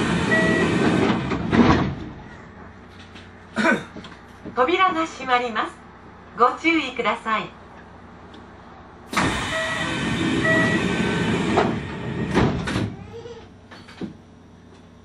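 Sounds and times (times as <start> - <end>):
train doors knocking shut: 0.0 - 2.2, 9.1 - 13.0, 13.7 - 14.2.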